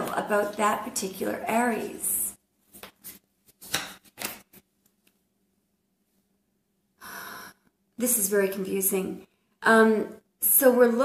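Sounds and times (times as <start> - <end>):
cards being shuffled: 2.6 - 5.2.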